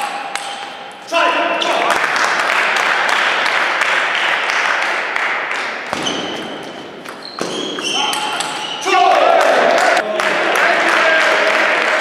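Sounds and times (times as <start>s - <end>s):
shoes squeaking on floor: 5.9s - 9.0s.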